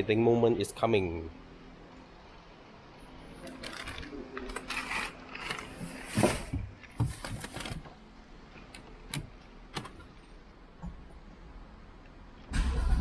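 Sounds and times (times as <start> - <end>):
thumps and rustles: 5.7 - 8.0
ignition switch clicks: 9.1 - 10.1.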